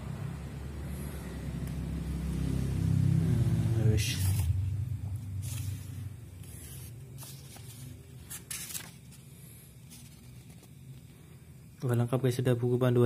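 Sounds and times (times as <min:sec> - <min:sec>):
low steady hum: 0:00.0 - 0:13.0
paper and plastic rustling: 0:05.4 - 0:11.0.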